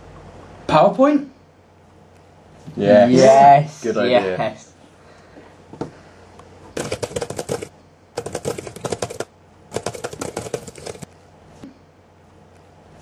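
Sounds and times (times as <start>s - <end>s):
typing on computer keyboard: 6.8s - 11.1s.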